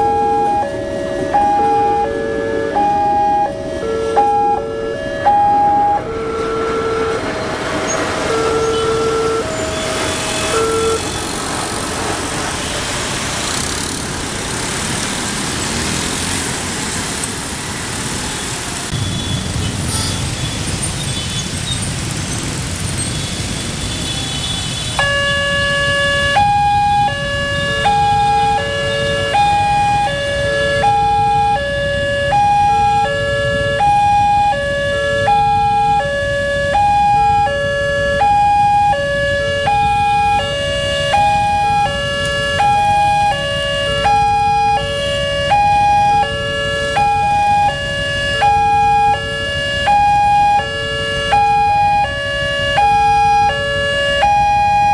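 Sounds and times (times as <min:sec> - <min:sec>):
level crossing warning alarm: 0:00.0 - 0:11.3, 0:24.6 - 0:54.9
motorbike traffic rumble: 0:00.0 - 0:54.9.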